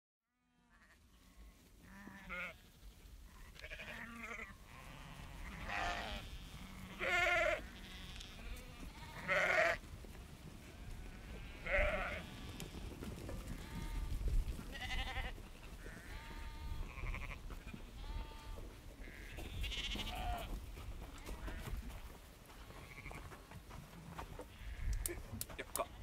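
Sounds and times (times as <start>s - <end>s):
sheep bleating: 0.4s - 2.7s, 3.3s - 9.8s, 10.7s - 20.6s, 22.7s - 23.2s, 24.5s - 26.0s.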